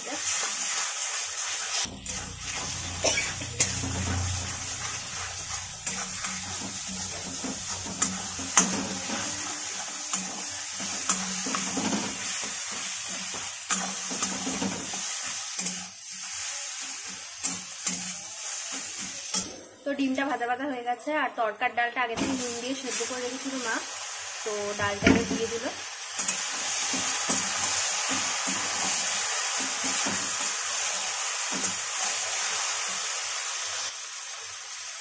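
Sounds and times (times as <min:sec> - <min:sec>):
eggs sizzling in a pan: 0:00.0 - 0:20.8, 0:22.2 - 0:35.0
metal spatula scraping pan: 0:01.6 - 0:15.9.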